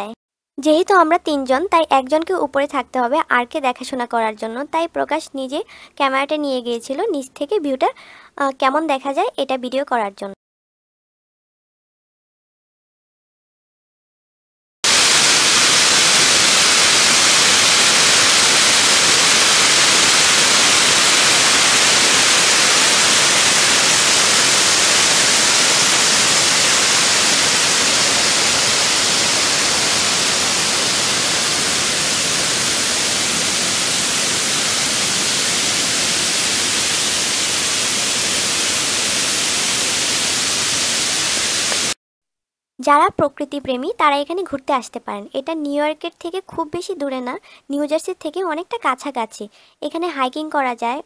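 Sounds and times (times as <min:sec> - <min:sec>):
river rushing among rocks: 0:14.9 - 0:41.9
waterfall pouring over dam: 0:14.9 - 0:42.0.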